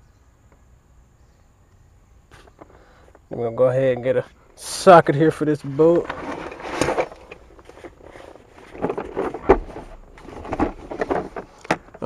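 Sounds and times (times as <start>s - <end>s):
plastic case being opened: 5.7s - 12.0s
sockets clicking and rattling: 6.0s - 12.0s.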